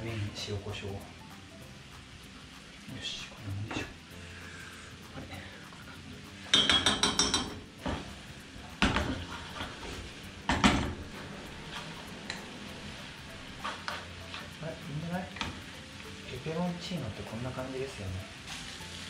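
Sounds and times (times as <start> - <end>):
pasta frying in pan: 0.0 - 19.0
metal utensils clattering on pans: 6.4 - 8.2, 8.8 - 12.4.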